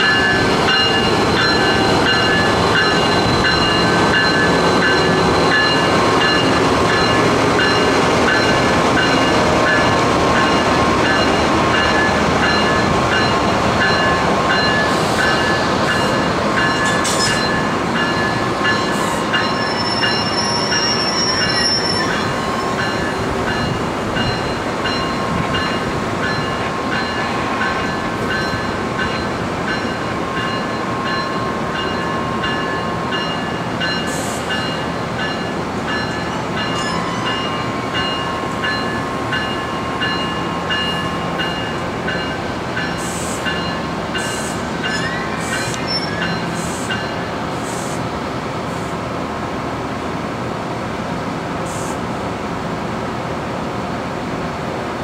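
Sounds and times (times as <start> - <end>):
train rolling on rails: 0.0 - 55.0
high-pitched wheel squeal: 19.5 - 22.7.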